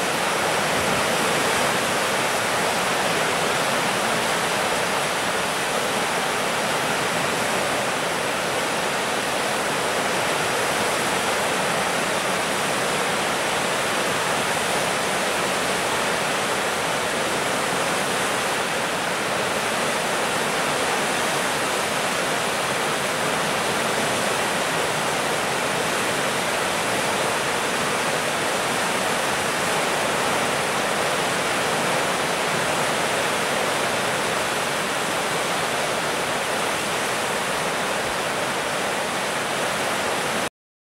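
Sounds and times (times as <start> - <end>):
floodwater rushing around bridge piers: 0.0 - 40.5.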